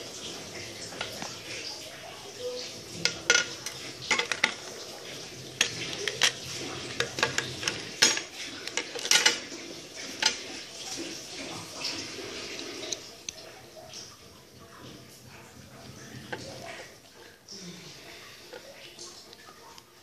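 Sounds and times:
toy parts clinking on table: 7.1s - 9.4s.

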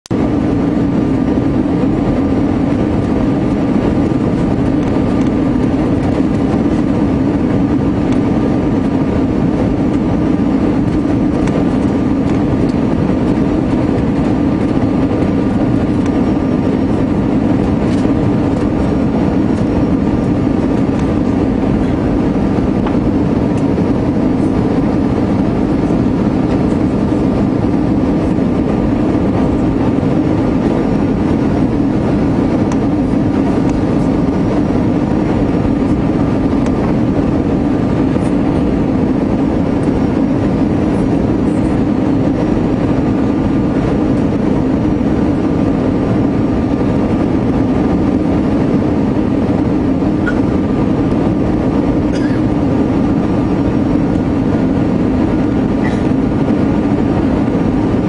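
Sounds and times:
jet engine and airflow rush: 0.0s - 58.0s
low hum: 0.0s - 58.0s
faint steady whine: 0.1s - 58.0s.

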